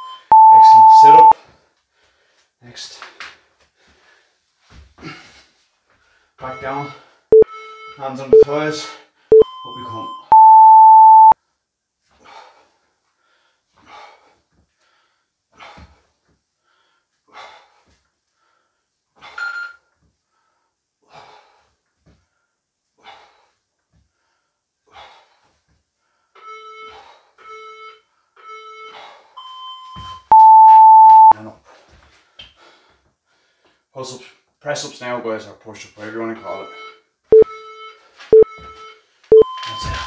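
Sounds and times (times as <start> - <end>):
higher timer beep: 0.0 - 1.4, 9.3 - 11.4, 30.3 - 31.4, 38.3 - 40.0
timer countdown beeps: 0.0 - 1.4, 7.3 - 8.5, 9.3 - 11.4, 26.4 - 31.4, 36.4 - 40.0.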